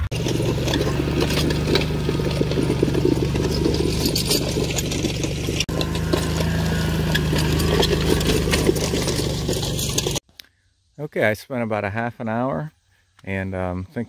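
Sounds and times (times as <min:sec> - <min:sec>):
harrow clattering: 0:00.0 - 0:10.2
utility vehicle engine running: 0:00.0 - 0:10.2.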